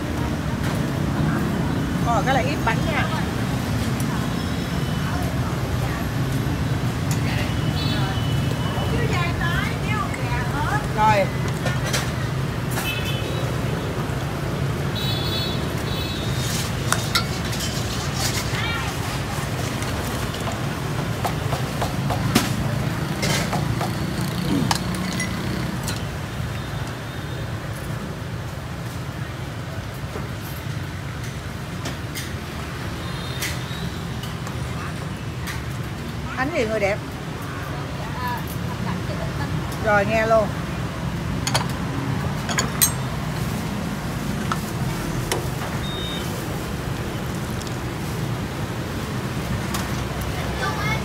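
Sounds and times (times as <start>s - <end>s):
street traffic hum: 0.0s - 51.0s
ceramic bowls and utensils clinking: 16.9s - 18.6s, 24.6s - 26.0s, 41.4s - 43.4s.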